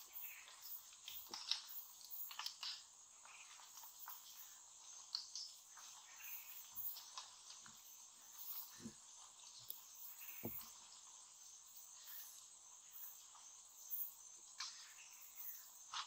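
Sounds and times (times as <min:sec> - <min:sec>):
insects chorus: 0:00.0 - 0:16.0
bird chirps and clicks: 0:00.2 - 0:08.8, 0:09.6 - 0:10.7, 0:14.5 - 0:16.0.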